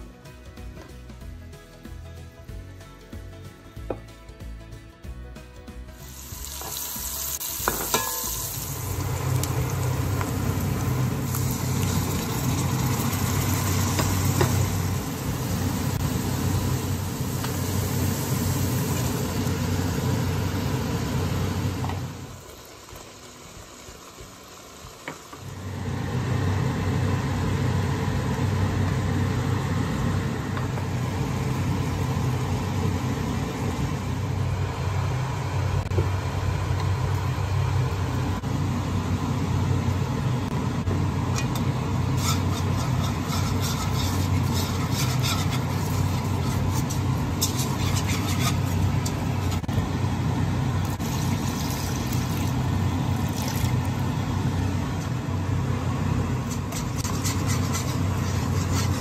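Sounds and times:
low mechanical hum: 0:07.7 - 0:59.0.

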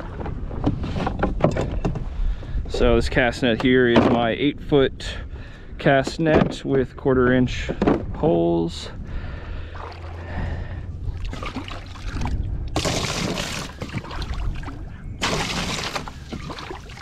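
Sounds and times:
water sloshing and pouring: 0:09.6 - 0:10.4, 0:11.0 - 0:17.0.

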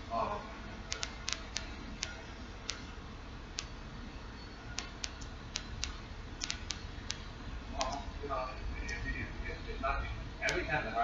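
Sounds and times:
sharp clicks: 0:00.9 - 0:02.9, 0:04.8 - 0:08.0.

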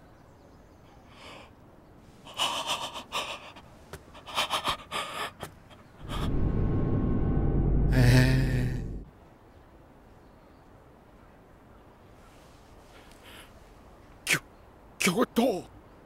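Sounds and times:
man gasping and panting: 0:02.3 - 0:06.4
loud low hum: 0:06.0 - 0:09.1.

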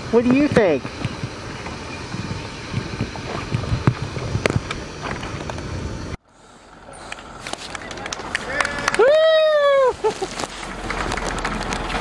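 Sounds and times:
wind buffeting microphone: 0:00.0 - 0:06.2.

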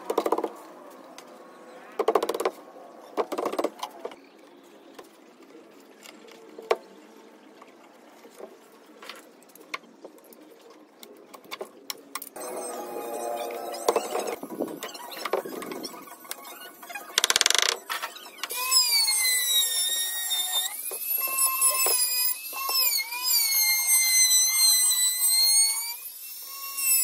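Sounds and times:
electric router whining: 0:12.4 - 0:14.8.

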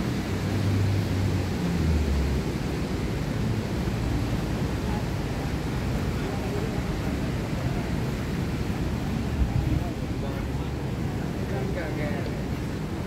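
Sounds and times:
faint voices of people: 0:04.7 - 0:13.0.

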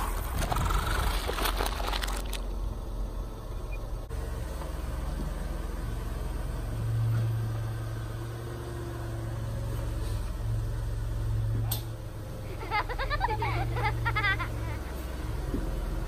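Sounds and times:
car engine rumble: 0:00.0 - 0:16.0.

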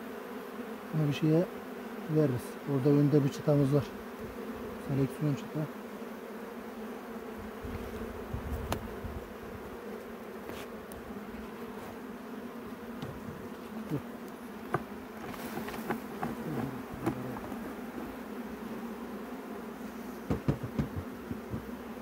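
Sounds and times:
bee buzzing past: 0:00.0 - 0:22.0
honeybees humming: 0:00.0 - 0:22.0
hive tool knocking and scraping wood: 0:07.7 - 0:09.0, 0:10.4 - 0:18.2, 0:20.1 - 0:22.0.

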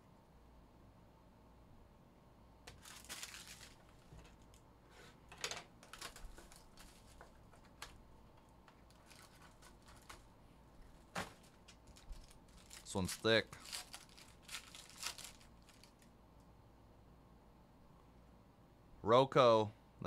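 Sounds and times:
plastic shrink-wrap crinkling: 0:02.7 - 0:04.6, 0:05.8 - 0:08.0, 0:08.8 - 0:10.3, 0:10.9 - 0:16.1.

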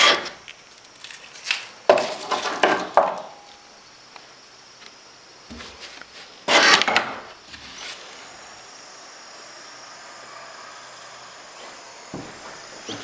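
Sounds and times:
wooden scraping: 0:05.5 - 0:08.2
wood knocking: 0:12.1 - 0:13.0.

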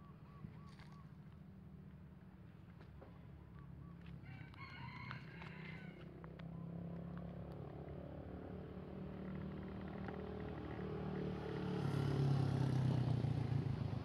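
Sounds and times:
rooster crowing: 0:04.2 - 0:06.0.

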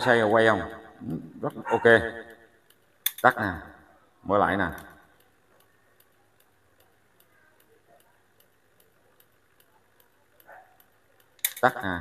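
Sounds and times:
motor ticking: 0:02.2 - 0:03.4, 0:04.7 - 0:12.0.

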